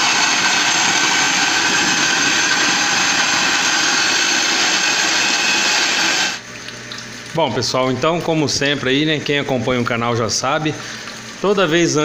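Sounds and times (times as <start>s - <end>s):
drill driving grain mill: 0.0s - 6.4s.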